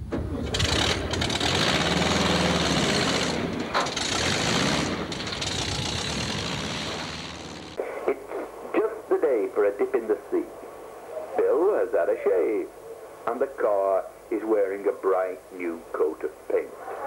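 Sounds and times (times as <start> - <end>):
rattling vehicle engine: 0.0 - 7.8.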